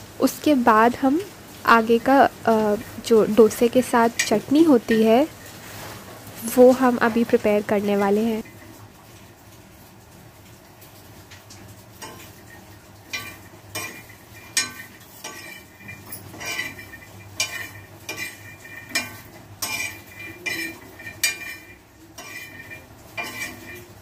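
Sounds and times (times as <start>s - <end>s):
metal spoon clinking and scraping pan: 2.9s - 5.6s, 12.0s - 24.0s.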